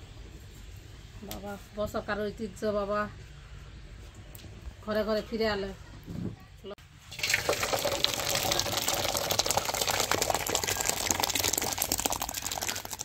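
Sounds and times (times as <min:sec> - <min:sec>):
thick liquid pouring and splashing: 0:07.1 - 0:13.0.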